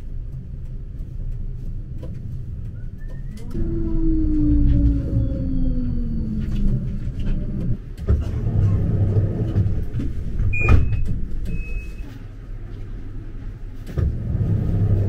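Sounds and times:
road vehicle rumble: 0:00.0 - 0:15.0
street traffic noise: 0:00.0 - 0:15.0.

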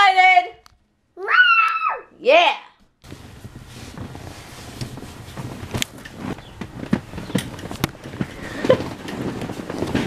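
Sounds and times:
sharp clicks and knocks: 0:04.8 - 0:10.0.

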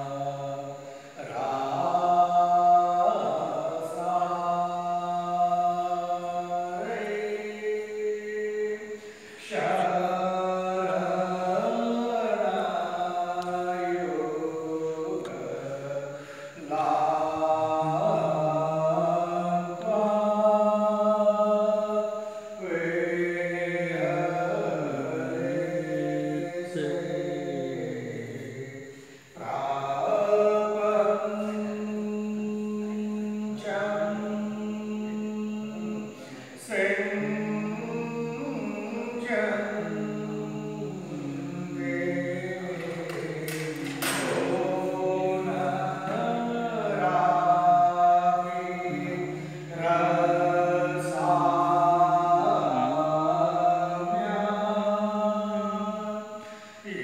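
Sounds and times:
person chanting long notes: 0:29.4 - 0:57.0.

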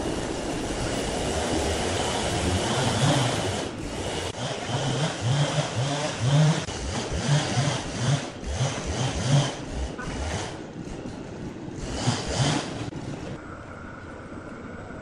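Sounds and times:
band saw cutting log: 0:01.1 - 0:10.7, 0:11.8 - 0:12.9.

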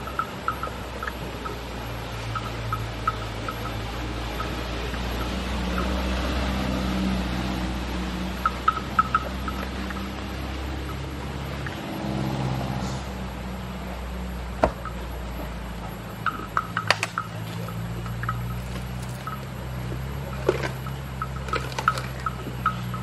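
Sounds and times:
elephants crunching stalks: 0:16.2 - 0:23.0.

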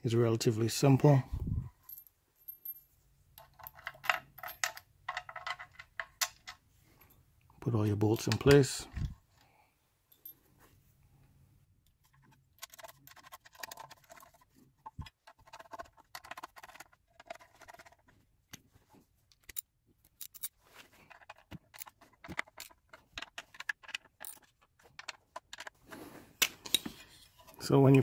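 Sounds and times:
socket tool and bolts clicking: 0:19.3 - 0:20.5.

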